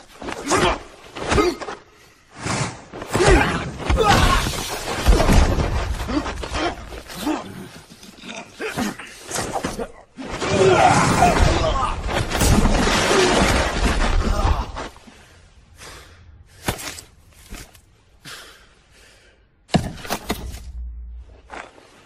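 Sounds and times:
loud knocks and crashes: 3.8 - 6.3.

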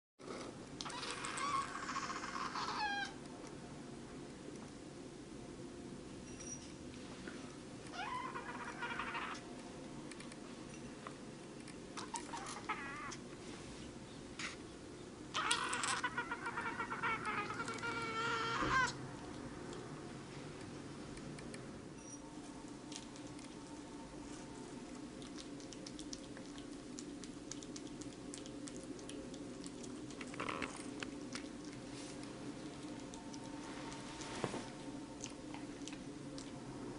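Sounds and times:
kitten mewing: 7.9 - 9.4, 12.0 - 13.2, 15.3 - 19.0
kitten licking and chewing: 22.4 - 36.9.

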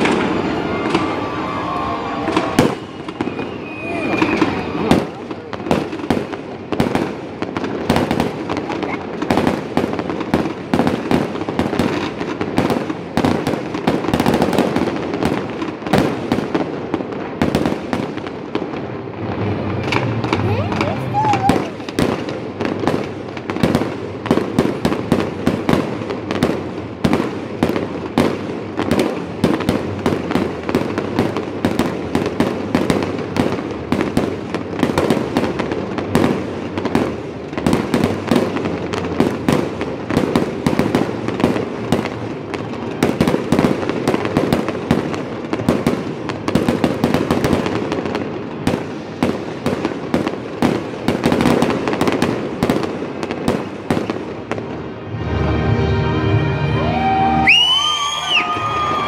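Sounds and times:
firework shells bursting: 0.0 - 28.1.

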